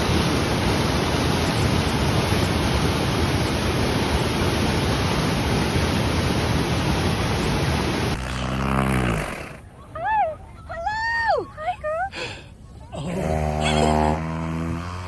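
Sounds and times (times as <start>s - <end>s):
whitewater rushing in stream: 0.0s - 9.7s.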